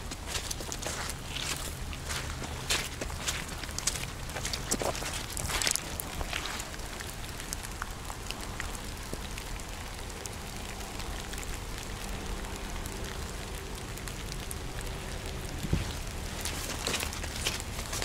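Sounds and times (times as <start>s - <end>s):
footstep rustling in leaves: 0.0s - 9.7s, 15.0s - 18.0s
light rain on leaves: 0.0s - 18.0s.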